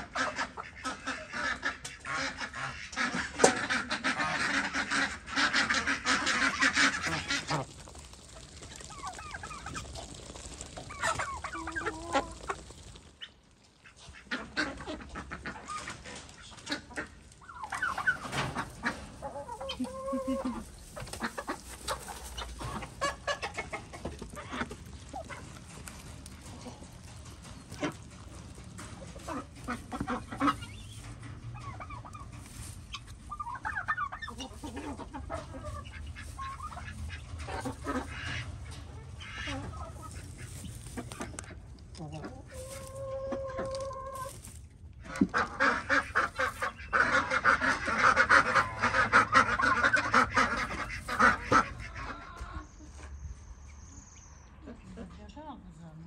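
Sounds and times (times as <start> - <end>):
geese and ducks calling: 0.0 - 53.2
chickens clucking: 0.0 - 55.8.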